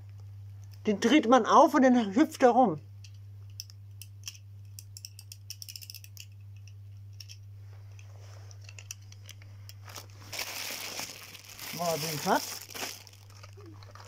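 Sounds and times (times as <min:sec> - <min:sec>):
steady low hum: 0:00.0 - 0:14.0
wind-up toy ratchet clicks: 0:04.2 - 0:06.3
rustling noise: 0:09.8 - 0:13.2.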